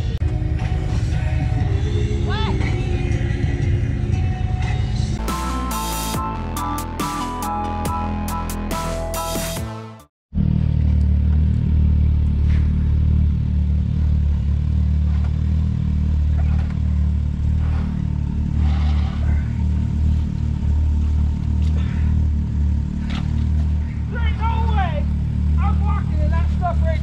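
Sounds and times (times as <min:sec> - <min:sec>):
vehicle engine idling: 0:00.0 - 0:08.0, 0:10.3 - 0:27.0
knocks and clatters: 0:16.2 - 0:18.2.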